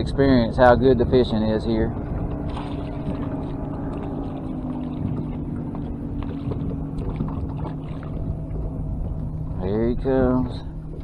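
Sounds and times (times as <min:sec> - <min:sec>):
wind rumble on microphone: 0:00.0 - 0:11.0
electric trolling motor humming: 0:00.2 - 0:11.0
fish splashing: 0:02.4 - 0:09.2.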